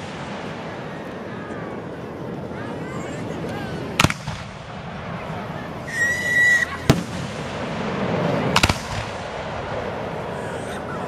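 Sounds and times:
firework bangs: 0.0 - 2.0, 3.9 - 10.9
firework whistle: 5.8 - 7.2.

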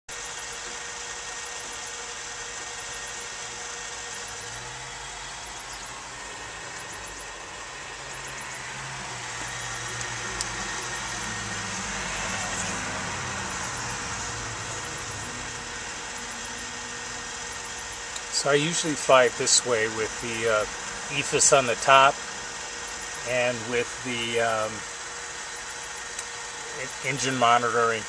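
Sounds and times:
machine hum and hiss: 0.1 - 28.0
thin steady whine: 0.1 - 28.0
low hum rising in pitch: 2.9 - 24.9.

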